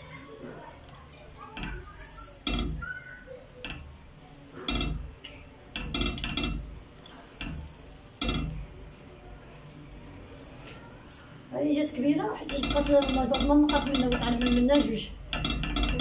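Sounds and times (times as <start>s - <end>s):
metal mould tapping pan: 1.5s - 3.0s, 3.6s - 8.8s, 12.4s - 16.0s.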